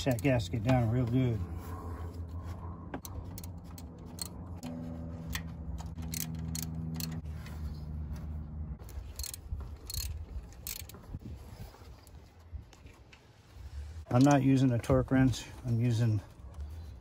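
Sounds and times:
low hum: 0.4 - 14.0
hand ratchet clicking: 5.3 - 7.2, 8.9 - 11.0.

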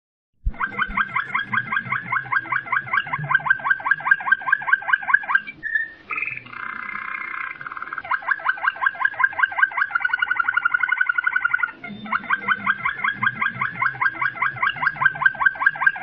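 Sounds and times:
bird harsh buzzy chatter: 0.6 - 5.4.

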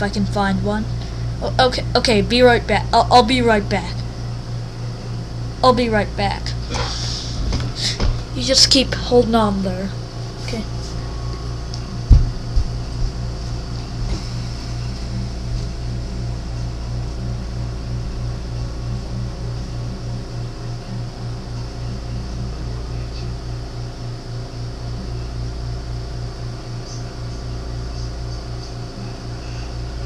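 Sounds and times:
throbbing machine hum: 0.0 - 26.4.

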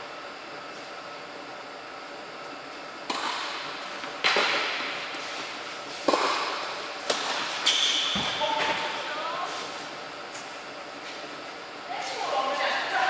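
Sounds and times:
tennis ball struck by rackets: 3.1 - 4.9, 6.0 - 8.4.

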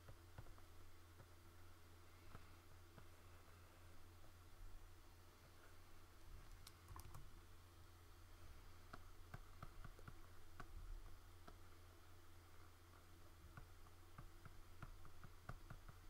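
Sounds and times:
low electrical hum: 0.0 - 16.0
faint computer mouse clicks: 6.4 - 7.3.

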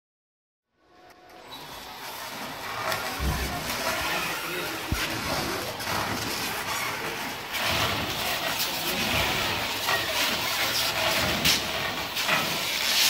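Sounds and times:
wrapping machine whirring: 1.8 - 13.0
stretch film hissing: 6.4 - 13.0.

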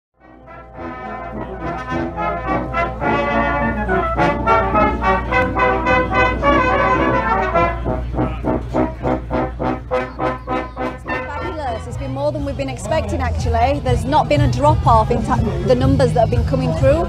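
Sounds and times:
brass band playing: 0.2 - 17.0.

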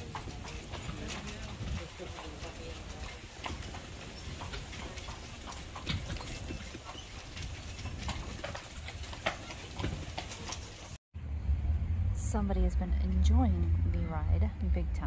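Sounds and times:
horse hooves clip-clopping on brick: 0.0 - 11.0.

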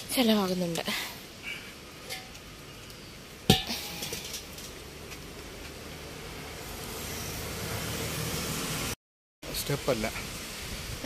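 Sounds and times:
sharp metallic clank: 3.5 - 4.6.

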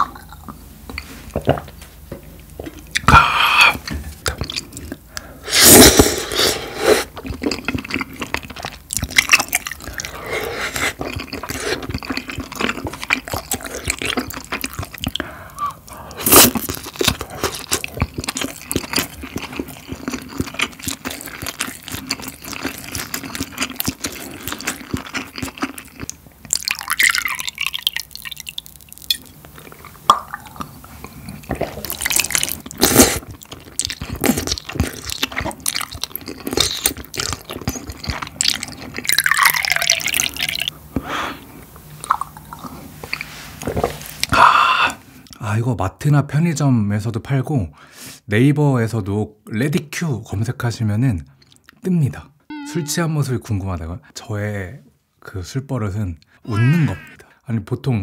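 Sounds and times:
wet chewing and slurping: 2.5 - 40.8, 41.6 - 45.4
liquid pouring into shot glass: 26.6 - 29.3, 39.1 - 40.7.

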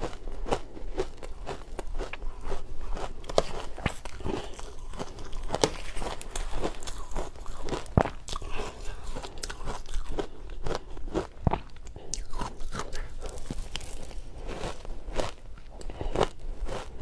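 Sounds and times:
crunching and chewing ice: 0.0 - 17.0.

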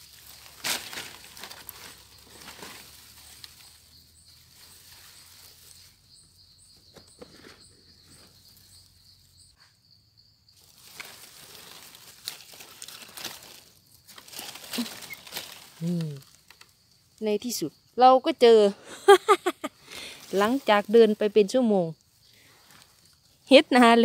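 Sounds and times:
dry leaves rustling and crackling: 0.0 - 6.2, 10.6 - 17.2, 20.0 - 21.6, 22.4 - 23.4
high insect drone: 0.0 - 24.0.

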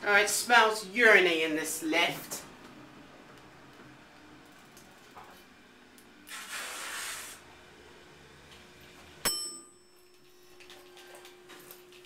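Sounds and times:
elevator hiss: 6.2 - 7.5.

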